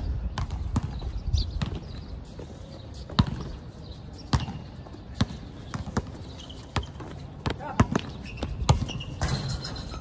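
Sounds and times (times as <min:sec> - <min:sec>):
basketball bouncing on hard court: 0:00.3 - 0:01.9, 0:03.1 - 0:03.6, 0:04.3 - 0:09.6.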